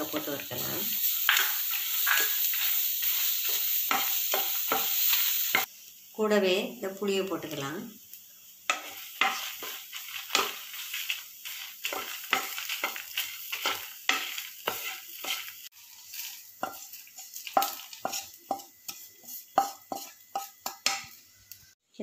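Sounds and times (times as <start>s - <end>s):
light sizzle: 0.0s - 22.0s
wooden spatula scraping pan: 8.7s - 21.0s.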